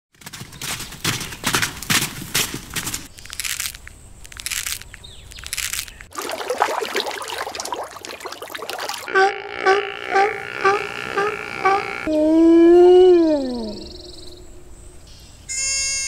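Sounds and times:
faint crunches and clicks: 0.1s - 6.1s
hooves crunching on gravel: 0.1s - 6.2s
rushing water: 6.1s - 9.1s.

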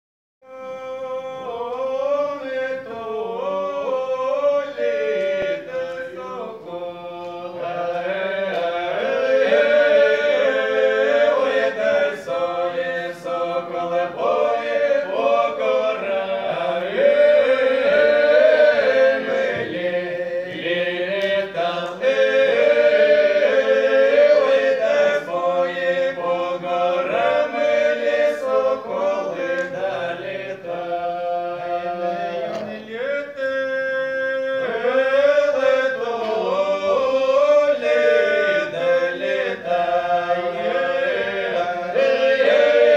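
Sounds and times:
male voices singing unaccompanied: 0.4s - 42.9s.

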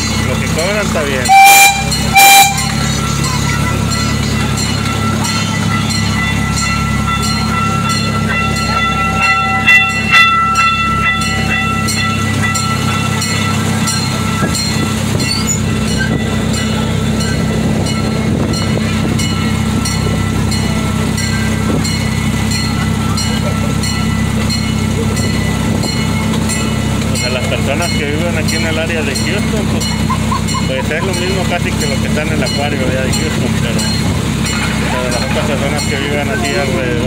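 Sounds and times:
train motor humming: 0.0s - 37.0s
wheels clicking over rails: 0.0s - 37.0s
train horn toots: 1.2s - 3.1s.

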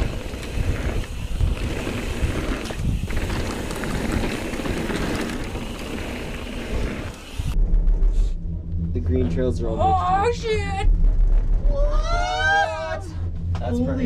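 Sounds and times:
bike clicks and rattles: 0.0s - 7.6s
bike tyre noise: 0.0s - 7.6s
wind buffeting microphone: 0.0s - 8.2s.

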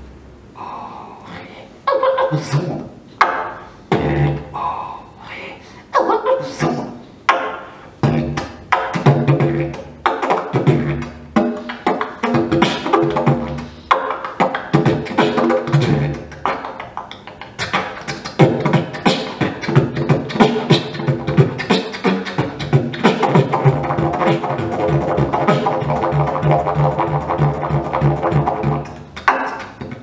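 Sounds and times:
didgeridoo drone: 7.4s - 30.0s.

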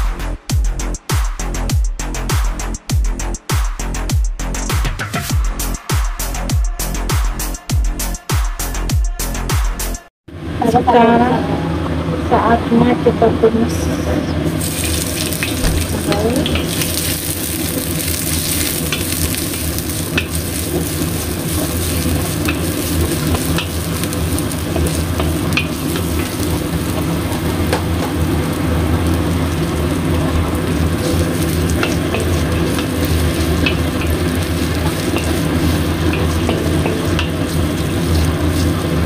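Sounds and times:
food sizzling in hot oil: 14.5s - 39.0s
spatula tapping wok: 14.8s - 39.0s.

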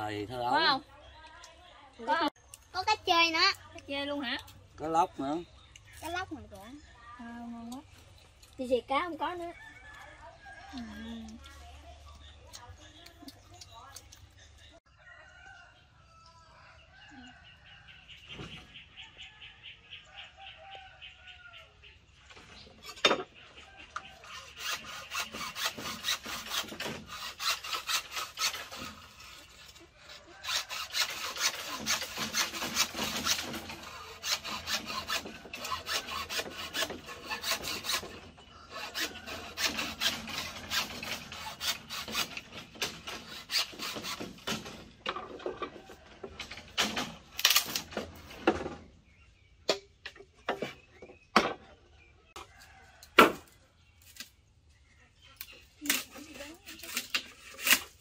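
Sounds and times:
hand tool rasping on wood: 24.2s - 44.6s.

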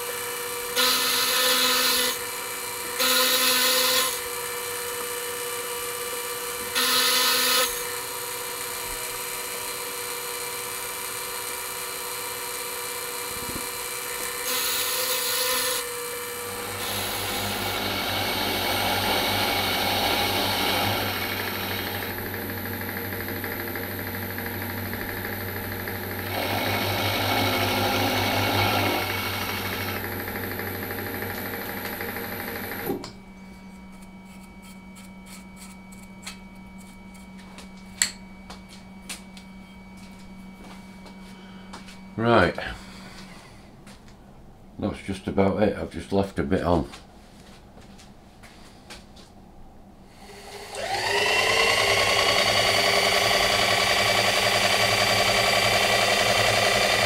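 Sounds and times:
machine motor tone: 6.6s - 36.1s, 50.2s - 57.0s
machine tool cutting steel: 6.7s - 10.1s, 12.8s - 33.0s, 50.3s - 57.0s.

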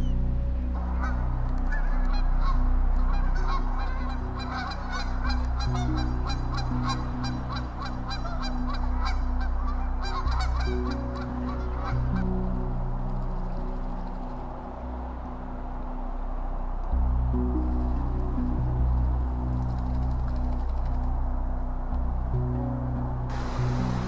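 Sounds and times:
music with low chords: 0.0s - 24.0s
geese honking: 0.8s - 12.3s.

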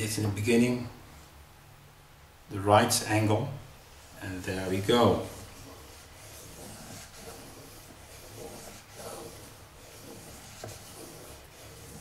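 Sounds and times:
knife rasping on whetstone: 4.9s - 12.0s.

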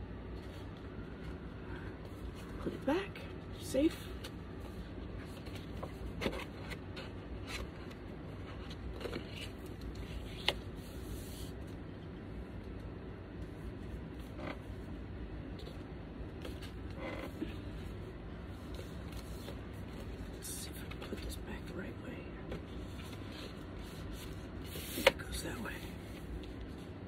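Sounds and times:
low steady hum: 0.0s - 27.0s
record sleeve rustling: 3.6s - 12.8s, 17.9s - 21.4s.

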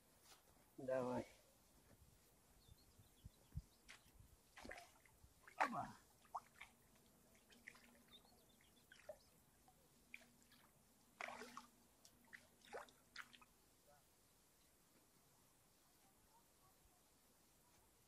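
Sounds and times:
water dripping and splashing: 4.6s - 9.3s, 10.1s - 13.5s.

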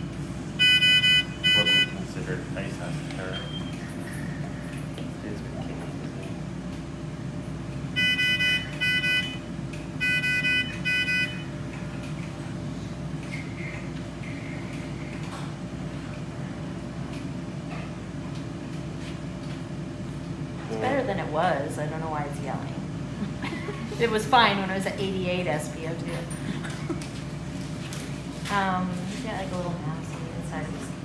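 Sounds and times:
low hum of equipment: 0.0s - 31.0s
short high electronic beeps: 0.6s - 2.0s.

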